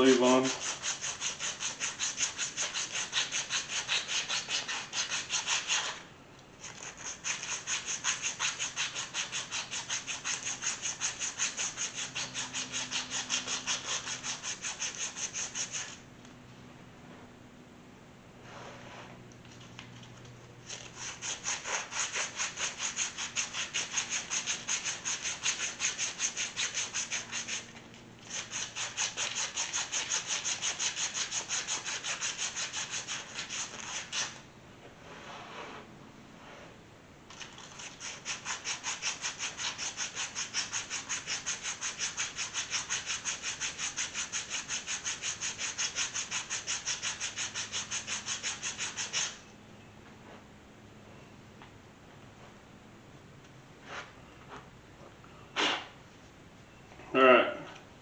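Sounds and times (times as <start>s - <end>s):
emery cloth rubbing on metal: 0.0s - 6.0s, 37.6s - 49.4s.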